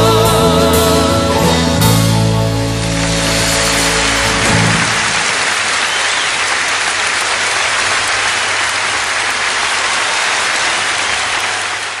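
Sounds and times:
dense applause: 2.7s - 12.0s.

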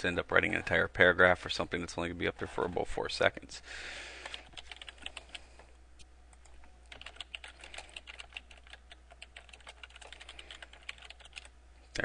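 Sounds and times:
faint keyboard typing: 4.2s - 5.7s, 6.3s - 11.5s.

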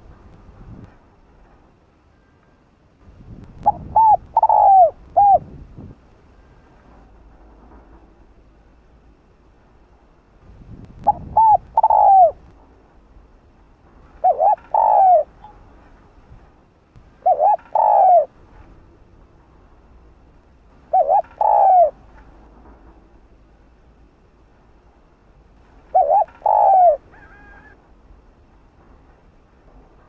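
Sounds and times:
dove cooing: 3.6s - 5.5s, 11.1s - 12.4s, 14.2s - 15.5s, 17.2s - 18.3s, 20.9s - 22.0s, 25.9s - 27.8s.

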